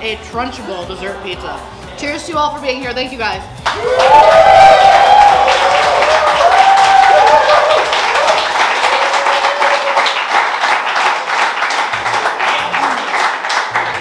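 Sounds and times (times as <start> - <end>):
music playing: 0.0 - 14.0
crowd applauding: 3.6 - 14.0.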